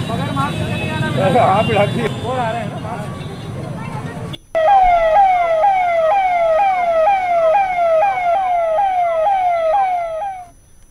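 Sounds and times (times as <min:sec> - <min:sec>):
electronic siren falling sweep: 0:04.6 - 0:10.5.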